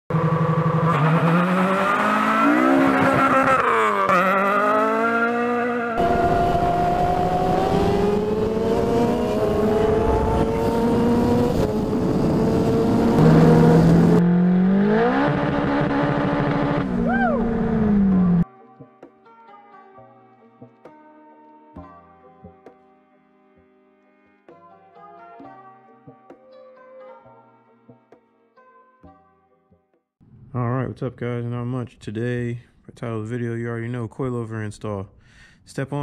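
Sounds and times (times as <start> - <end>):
car engine revving: 0.1 - 18.4
motorcycle engine at speed: 0.1 - 18.4.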